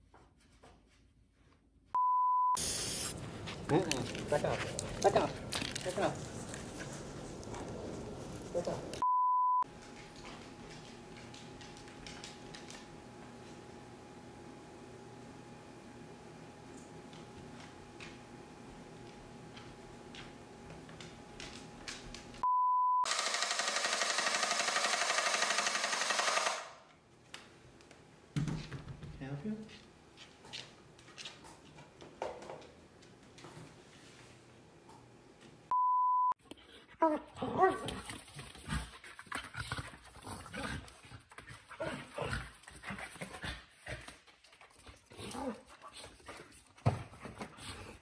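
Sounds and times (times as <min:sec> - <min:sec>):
test-tone beep: 0:09.0 - 0:09.6, 0:35.7 - 0:36.4
faint hum: 0:09.6 - 0:22.5.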